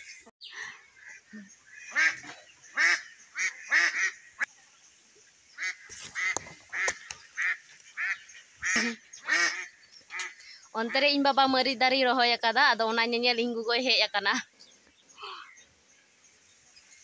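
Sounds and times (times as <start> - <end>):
waterfowl calling: 0.6 - 4.5, 5.6 - 11.1.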